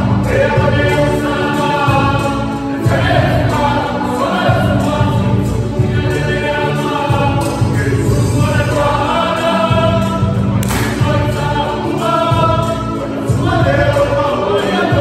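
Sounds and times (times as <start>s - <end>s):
group of voices singing: 0.0s - 15.0s
strong low accompaniment: 9.7s - 11.6s.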